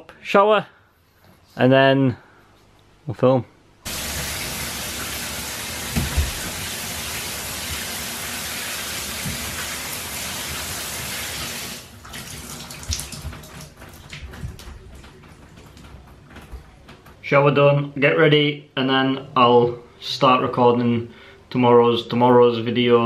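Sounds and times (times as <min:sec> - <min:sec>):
shower spray hissing: 0:03.9 - 0:13.2
water drips: 0:03.9 - 0:15.1.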